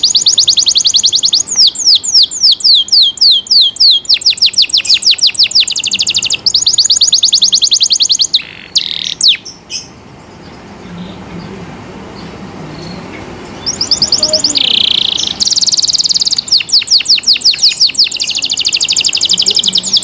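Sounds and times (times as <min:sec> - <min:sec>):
canary singing: 0:00.0 - 0:20.0.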